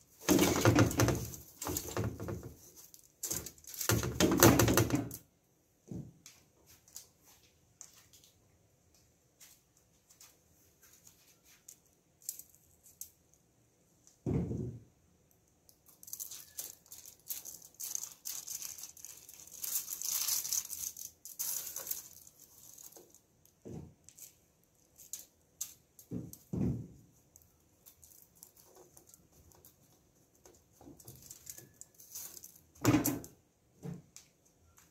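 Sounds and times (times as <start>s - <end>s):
rustling and crinkling of foil: 0.1s - 4.3s, 15.8s - 26.5s, 27.1s - 32.8s
baking tray thumping: 26.1s - 27.0s.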